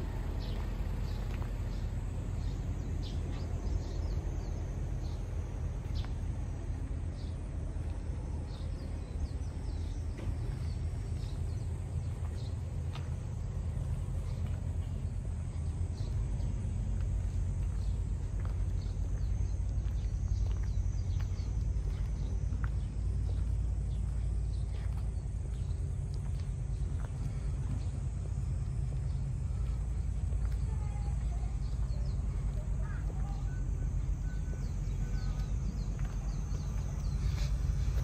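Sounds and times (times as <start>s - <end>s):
small birds chirping: 0.0s - 38.0s
steady low rumble: 0.0s - 38.0s.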